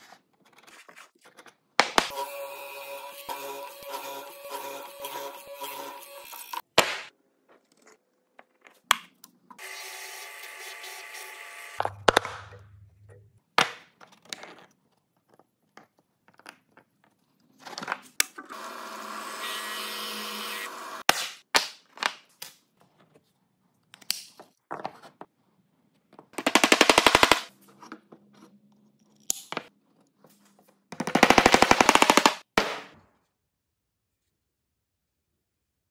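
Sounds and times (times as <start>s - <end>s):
small motor running: 2.1s - 6.6s.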